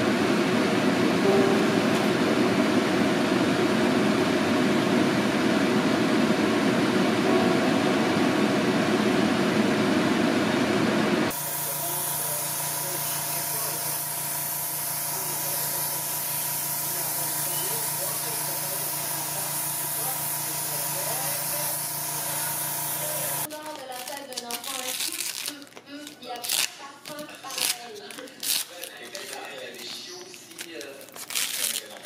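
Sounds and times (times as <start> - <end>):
steady low hum: 1.2 - 13.7
airbrush spraying paint: 11.3 - 23.5.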